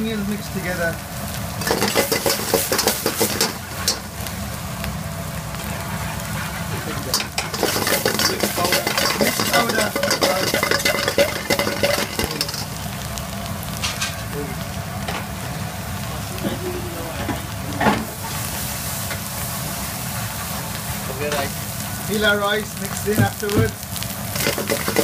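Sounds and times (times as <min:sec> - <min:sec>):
vegetables sizzling in hot oil: 0:00.0 - 0:25.0
metal ladle scraping a wok: 0:01.6 - 0:04.1, 0:06.1 - 0:12.7, 0:24.4 - 0:25.0.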